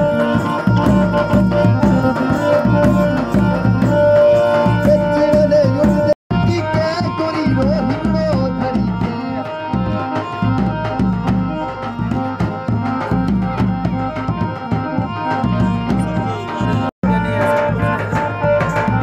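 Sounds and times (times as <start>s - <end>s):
barrel drum beaten fast: 0.0s - 19.0s
folk melody line: 0.0s - 19.0s.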